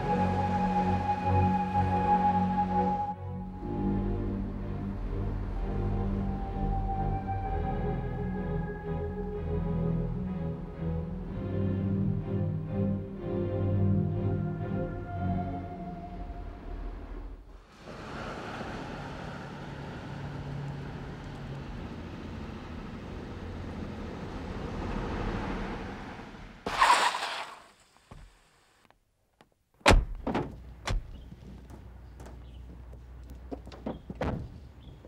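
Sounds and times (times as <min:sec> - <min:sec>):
car engine and tyre noise: 0:00.0 - 0:11.9, 0:15.8 - 0:29.0, 0:30.1 - 0:35.0
car door opening thunk: 0:29.8 - 0:31.2.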